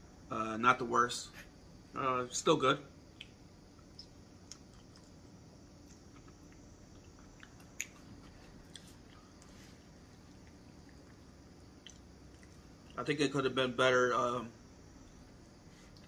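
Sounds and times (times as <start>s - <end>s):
person chewing food: 3.2s - 5.2s, 5.8s - 13.0s.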